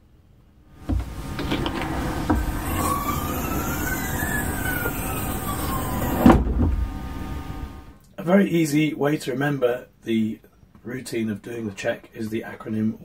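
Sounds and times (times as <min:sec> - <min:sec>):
faint wailing tone: 0:01.1 - 0:08.0.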